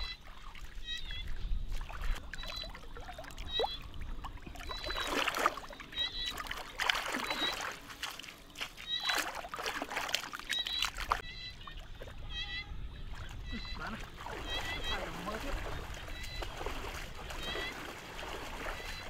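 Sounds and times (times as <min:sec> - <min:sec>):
hands splashing in muddy water: 0:04.6 - 0:11.2, 0:13.2 - 0:19.0.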